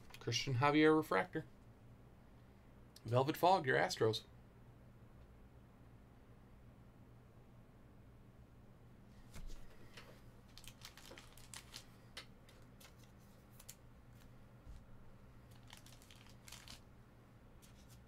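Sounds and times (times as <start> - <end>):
low steady hum: 0.0 - 18.0
cards and packaging rustling: 10.5 - 14.3, 15.5 - 16.9, 17.6 - 18.0.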